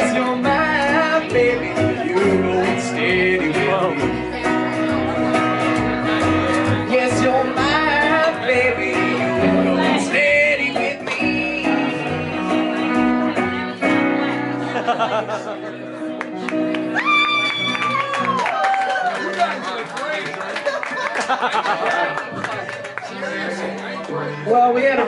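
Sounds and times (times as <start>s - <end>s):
person singing: 0.0s - 5.0s, 6.0s - 14.0s
upright bass: 0.0s - 18.2s, 21.4s - 25.0s
acoustic guitar: 0.0s - 18.6s, 21.0s - 25.0s.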